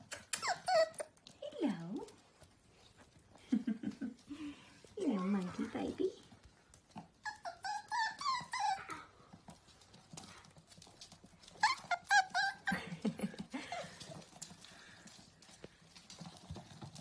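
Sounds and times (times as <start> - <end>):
puppy whining: 0.0 - 1.4, 6.8 - 14.5
puppies yipping: 0.1 - 1.2, 7.0 - 9.3, 10.8 - 13.0.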